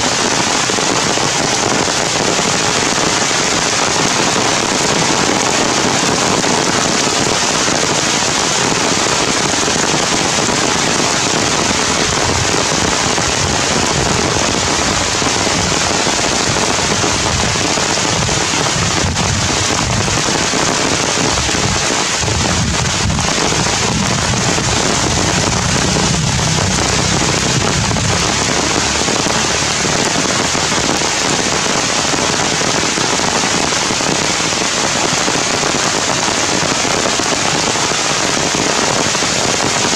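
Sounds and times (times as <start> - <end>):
heavy rain on leaves: 0.0 - 39.9
low rumble: 21.3 - 30.8.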